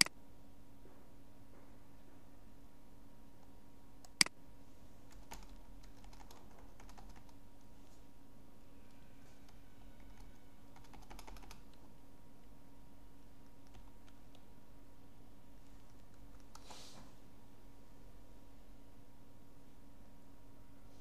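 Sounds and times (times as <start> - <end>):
faint steady hum: 0.0 - 21.0
keyboard keys clicking: 5.1 - 7.4, 10.1 - 11.8, 13.5 - 14.4.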